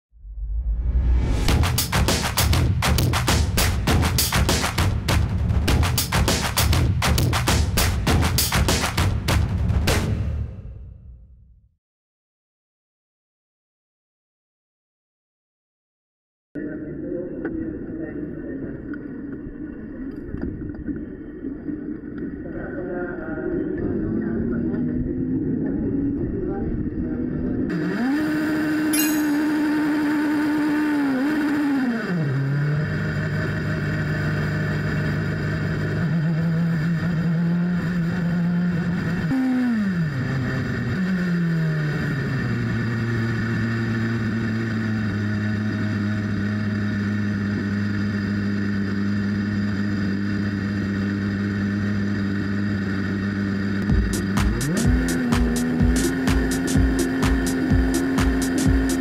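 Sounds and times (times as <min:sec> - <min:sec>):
racing car engine revving: 0:27.1 - 0:59.0.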